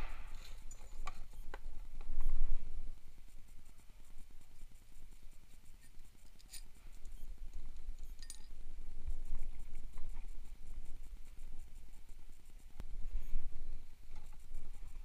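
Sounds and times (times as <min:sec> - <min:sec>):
handling noise and scraping: 0:00.0 - 0:15.0
light metallic clinks: 0:00.2 - 0:01.5, 0:05.8 - 0:08.7.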